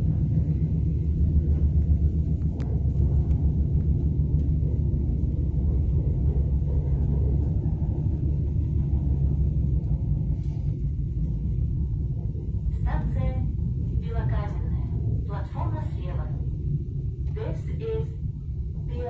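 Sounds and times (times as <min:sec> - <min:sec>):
train interior rumble: 0:00.0 - 0:19.0.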